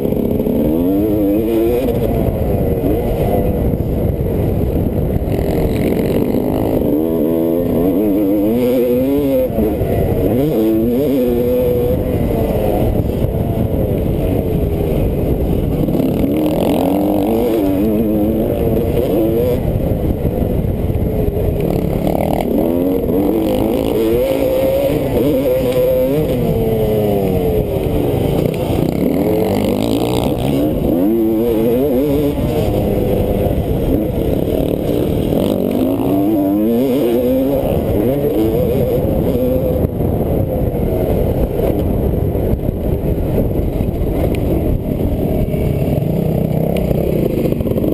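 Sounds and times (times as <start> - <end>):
rough rushing noise: 0.0 - 47.9
racing engine revving: 21.5 - 39.9.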